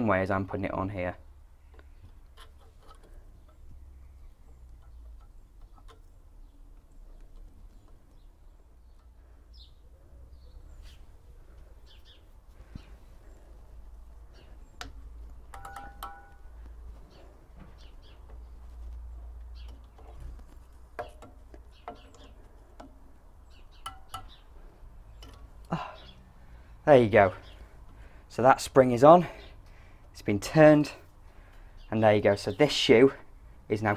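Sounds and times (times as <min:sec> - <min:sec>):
faint bird chirps: 0:01.2 - 0:18.6.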